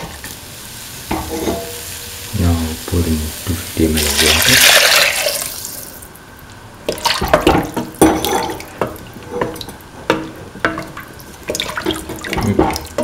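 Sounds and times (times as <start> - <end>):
metal spatula scraping a pan: 1.1 - 1.9.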